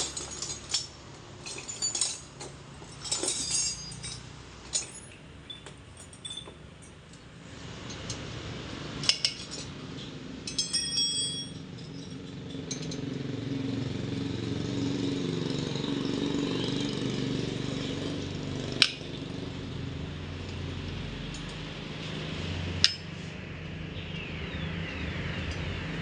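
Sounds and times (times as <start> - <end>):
wire spokes clinking: 0.0 - 7.2, 9.0 - 13.4.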